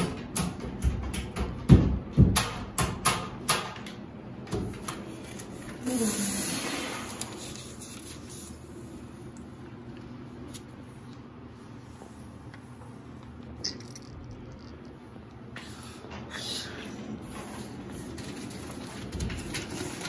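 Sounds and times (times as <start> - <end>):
paper sheets rustling: 4.9 - 9.3, 17.2 - 20.0.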